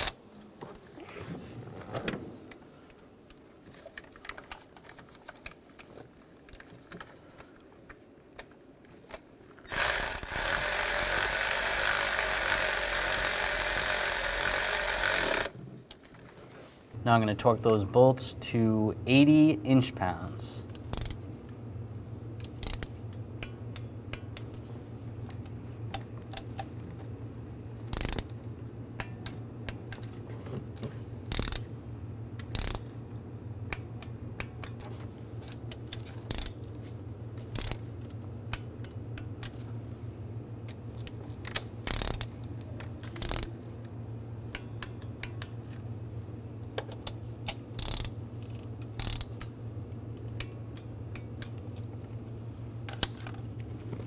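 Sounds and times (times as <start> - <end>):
torque wrench clicks: 9.7 - 15.5, 20.8 - 21.2, 22.4 - 24.6, 27.9 - 28.3, 31.3 - 31.7, 32.4 - 33.0, 35.7 - 36.6, 37.4 - 37.8, 41.0 - 42.4, 43.0 - 43.5, 46.8 - 49.5
ratchet bursts: 9.7 - 15.6, 20.8 - 21.2, 22.4 - 24.5, 27.9 - 28.3, 31.2 - 31.7, 32.4 - 33.0, 35.9 - 36.6, 37.4 - 37.9, 41.5 - 42.4, 43.0 - 43.5, 47.0 - 49.5.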